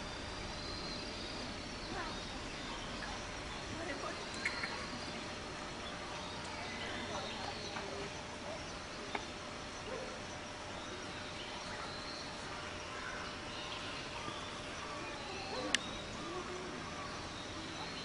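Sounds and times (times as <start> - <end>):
steady background noise: 0.0 - 18.0
chirping animal calls: 10.9 - 18.0.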